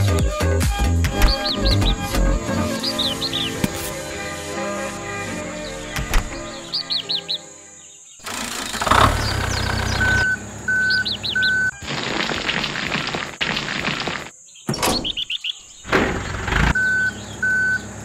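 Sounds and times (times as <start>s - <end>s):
bird chirps: 1.1s - 4.0s, 5.6s - 18.0s
truck engine rumble: 8.2s - 14.2s, 15.8s - 18.0s
reversing beeper: 9.6s - 11.8s, 16.7s - 17.9s
sand pouring hiss: 11.8s - 14.4s.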